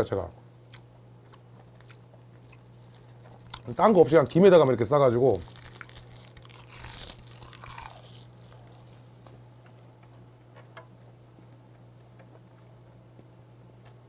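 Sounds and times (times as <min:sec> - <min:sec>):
person chewing: 0:00.7 - 0:04.4, 0:05.3 - 0:10.1
crisp seaweed crunch: 0:00.7 - 0:09.1.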